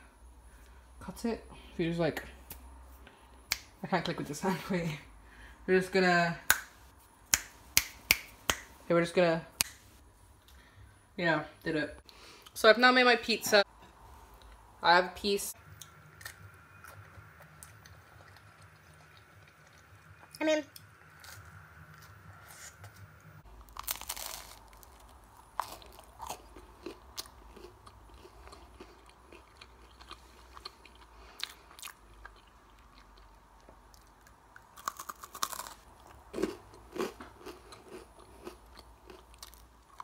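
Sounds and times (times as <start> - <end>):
chewing pizza: 15.8 - 40.0
crust crunching: 21.1 - 31.0, 34.8 - 40.0.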